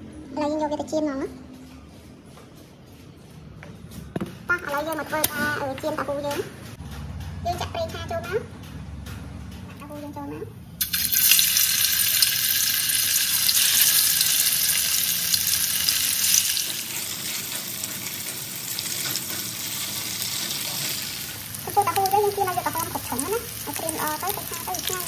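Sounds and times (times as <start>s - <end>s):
tofu sizzling in hot oil: 10.8s - 25.0s.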